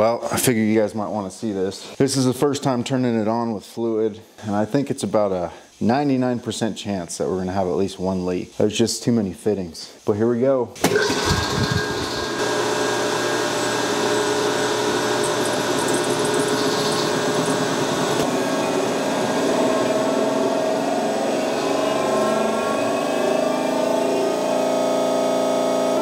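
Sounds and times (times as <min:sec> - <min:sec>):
hydraulic pump motor humming: 0:10.8 - 0:26.0.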